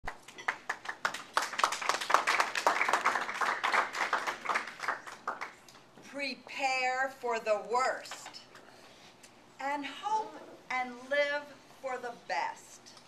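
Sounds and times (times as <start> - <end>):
audience applause: 0.5 - 5.5.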